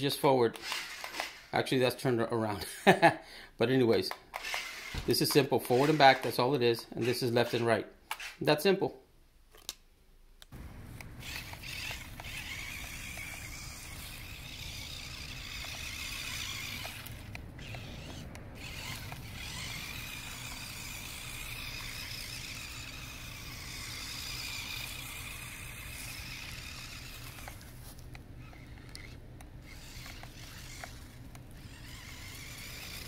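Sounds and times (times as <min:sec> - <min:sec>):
remote-control car motors whining: 0:00.5 - 0:01.6, 0:04.1 - 0:08.4, 0:10.6 - 0:33.0.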